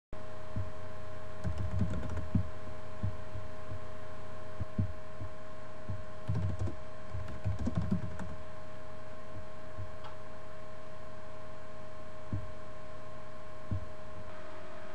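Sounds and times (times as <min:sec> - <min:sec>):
electrical hum: 0:00.2 - 0:14.9
muffled keyboard typing: 0:01.4 - 0:02.5, 0:06.3 - 0:08.4.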